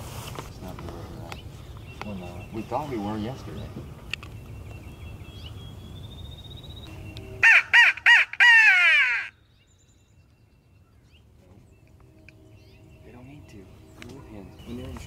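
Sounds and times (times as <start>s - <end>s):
crow cawing: 7.4s - 9.4s.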